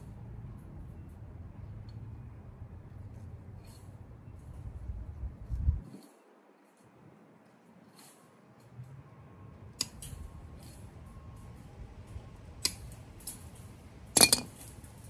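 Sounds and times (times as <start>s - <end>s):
wire cutters snapping wire: 9.8s - 10.8s, 12.6s - 15.0s.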